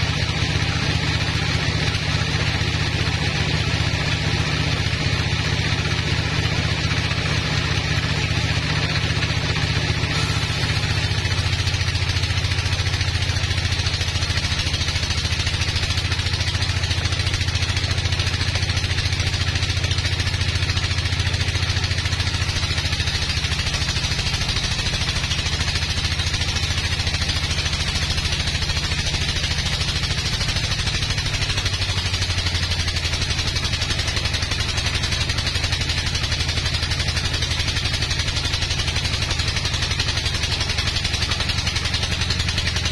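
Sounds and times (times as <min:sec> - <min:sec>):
engine drone: 0:00.0 - 0:42.9
saw blade cutting log hiss: 0:10.1 - 0:11.8.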